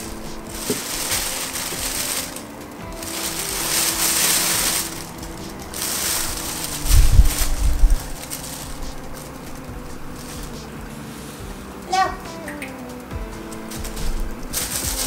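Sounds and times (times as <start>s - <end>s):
plastic bag rustling: 0.0s - 12.2s, 12.9s - 15.0s
dull low thumps: 2.8s - 11.8s.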